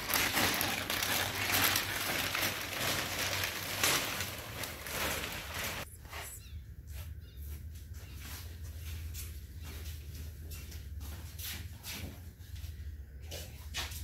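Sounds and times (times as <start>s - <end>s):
plastic sheeting crinkling: 0.0s - 5.9s.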